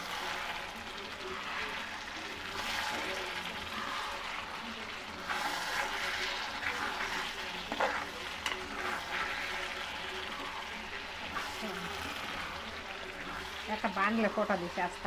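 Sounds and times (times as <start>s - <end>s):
chicken sizzling in a pan: 0.0s - 15.0s
metal spatula scraping pan: 5.2s - 9.9s.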